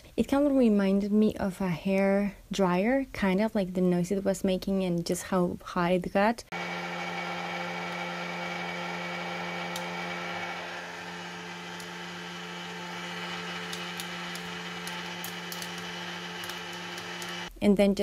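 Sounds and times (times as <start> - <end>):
popcorn popper fan humming: 6.5 - 17.5
popcorn kernels popping: 6.6 - 17.5.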